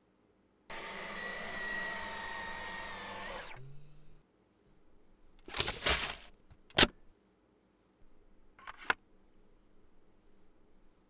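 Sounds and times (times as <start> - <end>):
vacuum cleaner motor whine: 0.7 - 4.2.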